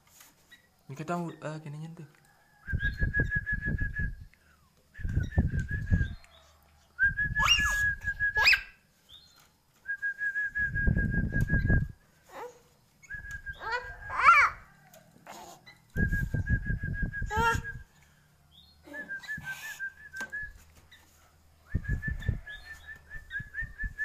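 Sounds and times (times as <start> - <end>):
person whistling: 7.0 - 8.6, 18.9 - 20.6.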